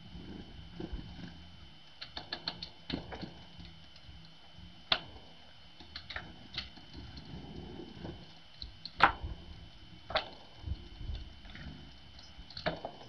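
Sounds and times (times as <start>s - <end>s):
low background rumble: 0.0s - 13.0s
sharp ticks and clicks: 1.9s - 5.1s.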